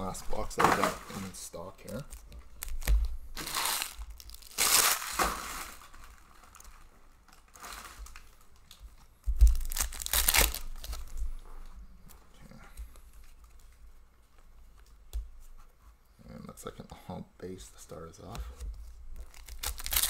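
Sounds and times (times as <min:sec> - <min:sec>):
foil wrappers crinkling: 0:00.0 - 0:11.4, 0:19.2 - 0:20.0
wrapper being torn open: 0:01.1 - 0:08.4, 0:09.5 - 0:11.2, 0:19.2 - 0:20.0.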